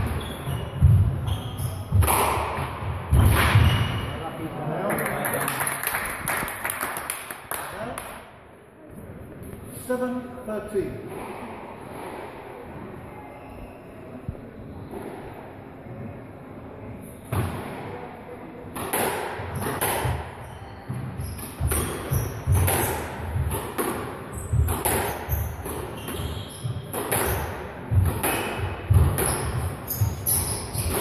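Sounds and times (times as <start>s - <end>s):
squash ball hit by rackets: 0.0s - 4.0s, 18.7s - 31.0s.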